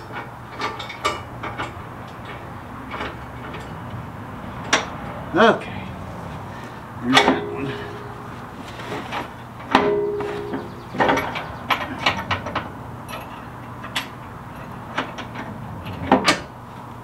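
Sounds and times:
metal clang ringing: 0:07.1 - 0:08.4, 0:09.1 - 0:14.2.

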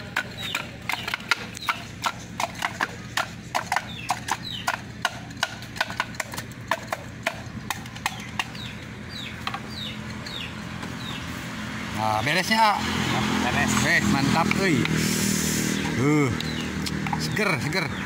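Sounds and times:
wooden pestle pounding in mortar: 0:00.0 - 0:09.9.

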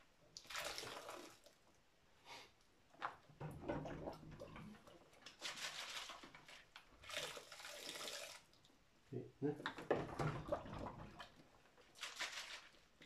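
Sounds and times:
water sloshing and splashing: 0:03.3 - 0:08.6, 0:09.7 - 0:13.0.

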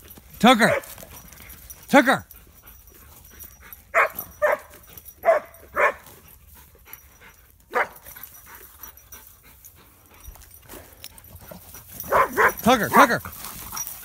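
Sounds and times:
dog barking and yelping: 0:00.6 - 0:01.2, 0:03.4 - 0:06.2, 0:07.7 - 0:08.2, 0:11.4 - 0:13.2.

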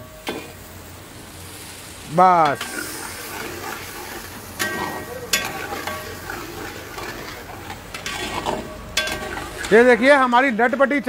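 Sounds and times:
gravy sizzling: 0:00.0 - 0:11.0
metal spatula scraping pan: 0:02.4 - 0:10.0
spatula clinking on pan: 0:04.6 - 0:06.2, 0:09.0 - 0:09.6.

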